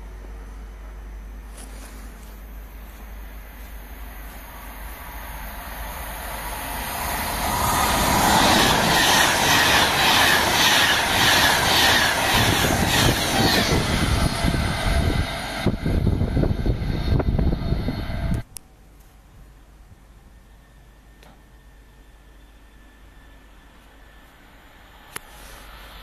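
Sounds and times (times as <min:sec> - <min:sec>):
train wheels clattering on rails: 0:07.2 - 0:15.8.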